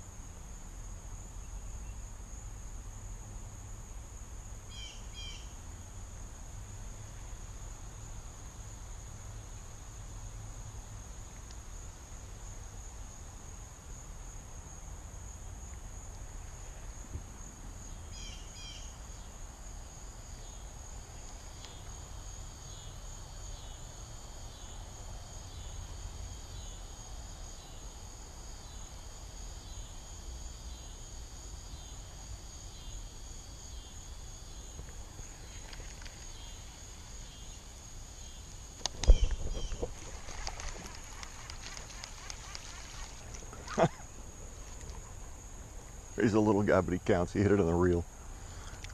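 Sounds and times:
insect rapid pulsing call: 0.0s - 48.9s
insect high trill: 4.7s - 5.6s, 17.8s - 48.7s.

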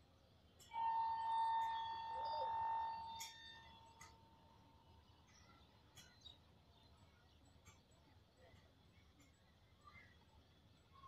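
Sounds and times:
train horn: 0.7s - 4.1s
faint clicks: 7.6s - 9.5s.

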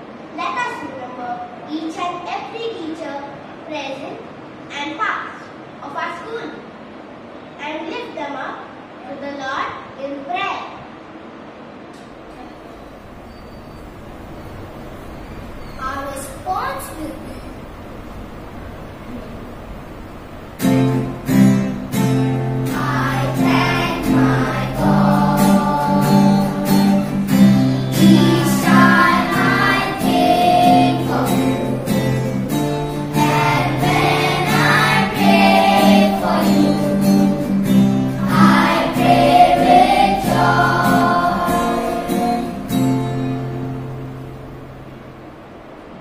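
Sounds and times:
voices singing a prayer: 22.6s - 42.8s.

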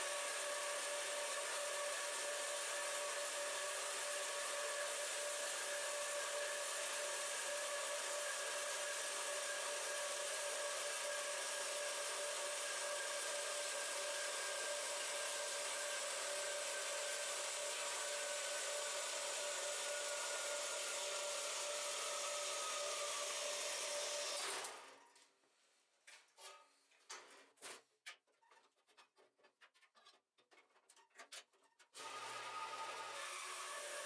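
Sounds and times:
bandsaw cutting metal: 32.0s - 34.0s.

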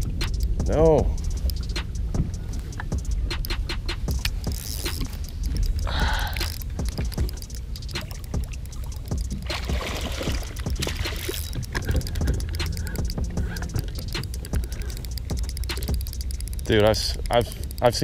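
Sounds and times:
steady low rumble: 0.0s - 18.0s
fish splashing at surface: 8.0s - 12.0s.

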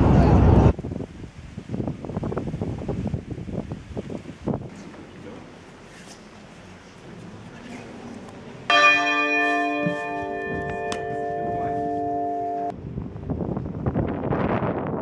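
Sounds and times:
chord of steady ringing tones: 8.7s - 12.8s.

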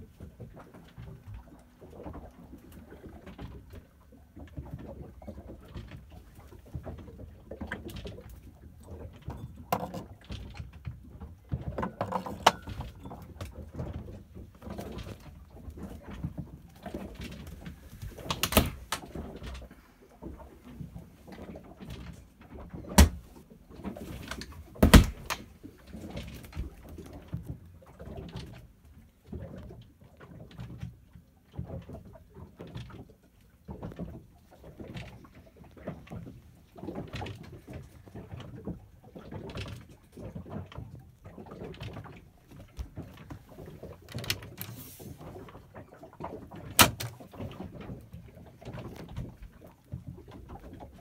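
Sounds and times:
small clicks and rustling: 0.1s - 51.0s
cabinet door opening and shutting: 18.2s - 19.2s, 22.9s - 23.2s, 24.3s - 25.5s, 46.7s - 47.2s.

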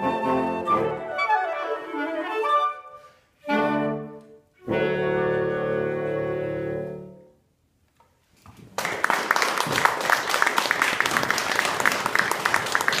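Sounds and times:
wind quintet chord: 0.0s - 7.4s
audience applause: 8.8s - 13.0s.

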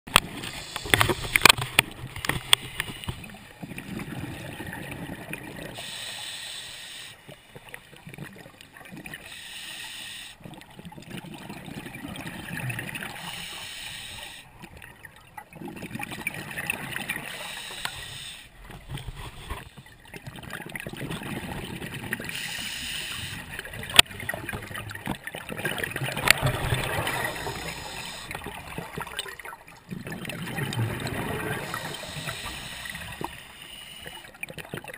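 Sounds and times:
diver inhaling through regulator: 0.4s - 1.6s, 5.7s - 7.3s, 9.2s - 10.4s, 13.1s - 14.5s, 17.2s - 18.6s, 22.3s - 23.5s, 26.9s - 28.6s, 31.3s - 34.3s
bubbling exhale: 26.3s - 29.2s, 30.0s - 34.4s.

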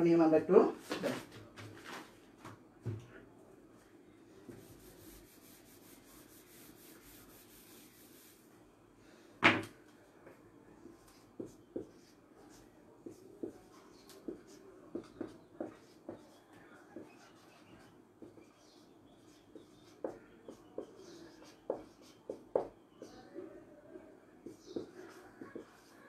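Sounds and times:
eraser rubbing whiteboard: 4.5s - 8.4s, 11.1s - 23.2s, 24.4s - 26.0s
marker pen strokes on board: 11.0s - 16.4s, 17.0s - 23.2s, 24.4s - 25.9s.

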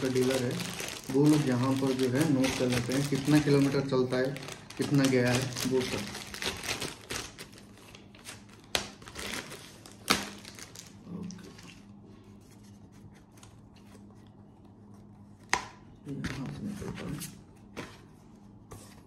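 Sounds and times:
plastic bag crinkling: 0.0s - 11.8s.

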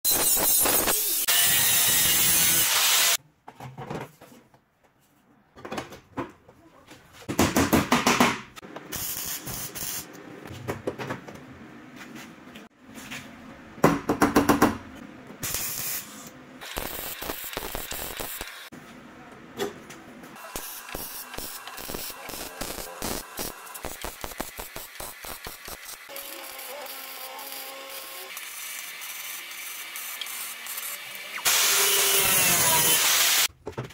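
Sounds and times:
angle grinder cutting steel: 0.1s - 3.2s, 20.4s - 33.5s
workshop noises: 0.1s - 33.9s
stick welding crackle: 9.0s - 10.1s, 15.4s - 18.7s, 20.4s - 31.6s.

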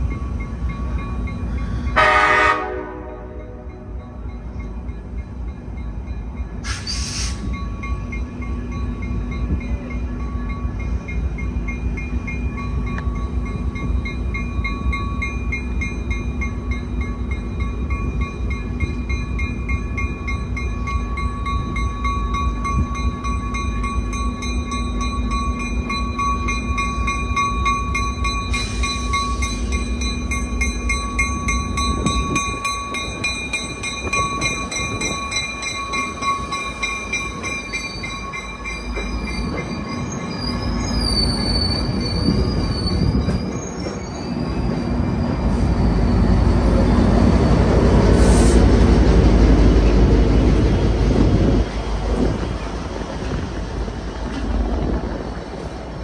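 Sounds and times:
diesel locomotive engine: 0.0s - 56.0s
train wheels rumbling on rails: 0.0s - 56.0s
high wheel squeal: 6.6s - 7.6s, 36.1s - 48.6s.

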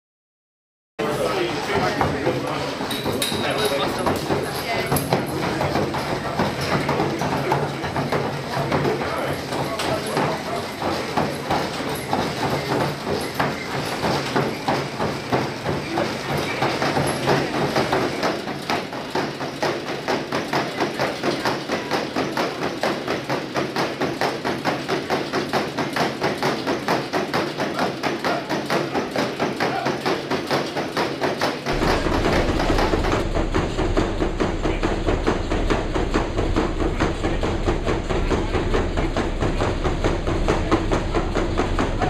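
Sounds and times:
horse hooves on treadmill belt: 1.0s - 42.0s
low hum: 31.7s - 42.0s.

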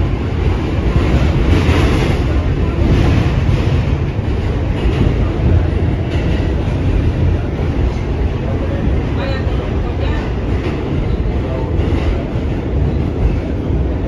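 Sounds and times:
subway train rumbling: 0.0s - 14.0s.

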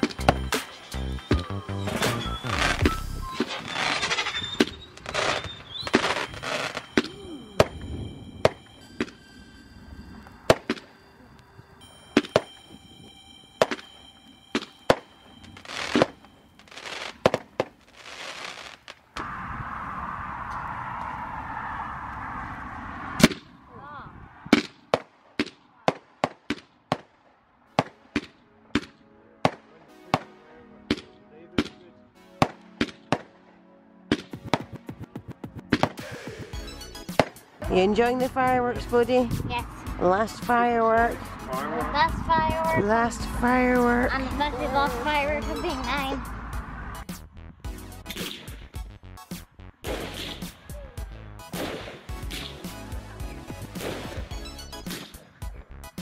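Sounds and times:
fireworks bangs and crackles: 0.0s - 9.2s, 14.6s - 19.9s, 34.1s - 36.4s, 48.1s - 48.9s, 49.8s - 55.6s
fireworks hiss: 15.5s - 19.3s.

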